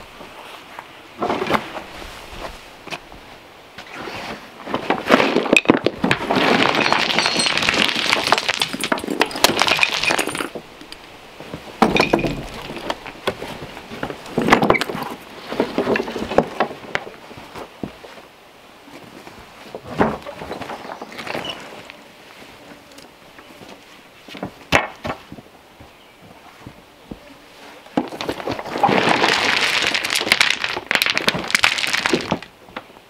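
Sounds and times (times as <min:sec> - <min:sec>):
stones clattering onto ground: 0:04.8 - 0:11.0, 0:11.8 - 0:13.4, 0:28.0 - 0:32.5.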